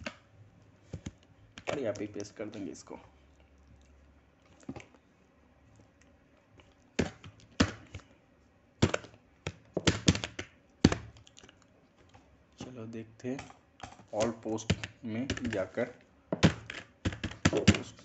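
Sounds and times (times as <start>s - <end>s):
computer keyboard keys clacking: 13.4s - 15.7s.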